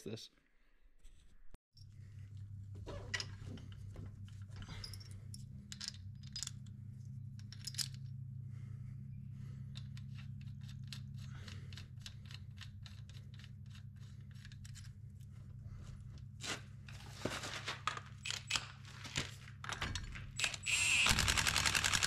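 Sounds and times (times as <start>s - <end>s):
steady low hum: 1.8s - 17.3s.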